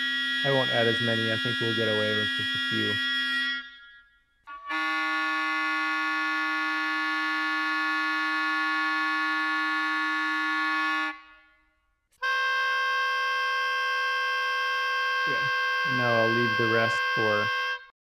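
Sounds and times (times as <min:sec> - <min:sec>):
oboe multiphonics: 0:00.0 - 0:06.2, 0:12.2 - 0:17.6.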